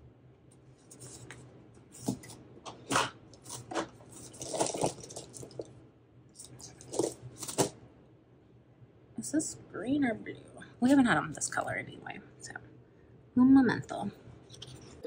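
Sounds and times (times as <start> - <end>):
pens clicking and rustling: 6.4 - 7.7.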